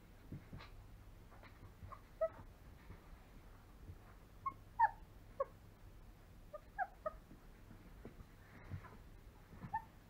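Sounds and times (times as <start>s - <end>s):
faint puppy squeak: 1.9s - 2.5s, 4.4s - 5.5s, 6.5s - 7.2s, 9.6s - 10.0s.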